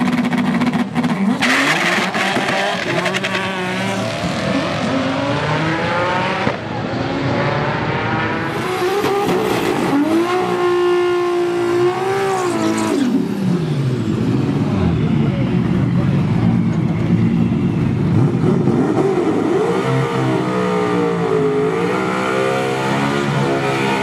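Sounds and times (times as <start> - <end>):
car engine revving in burnout: 0.0 - 13.2, 18.1 - 24.0
drag car engine accelerating: 0.0 - 24.0.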